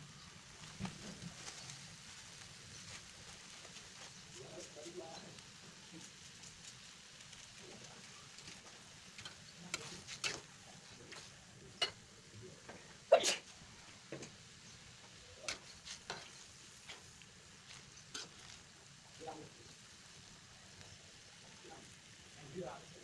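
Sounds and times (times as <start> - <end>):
faint sizzle: 0.0 - 23.0
metal spatula scraping a wok: 9.2 - 10.5, 15.4 - 18.7.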